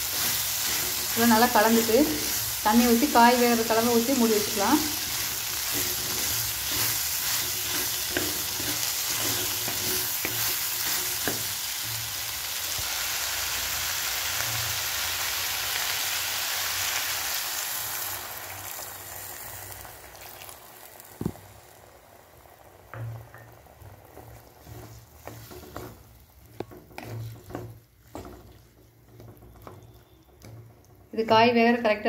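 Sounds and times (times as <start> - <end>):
wooden spatula scraping pot: 0.0 - 12.1, 24.0 - 31.7
vegetables sizzling in oil: 0.0 - 32.0.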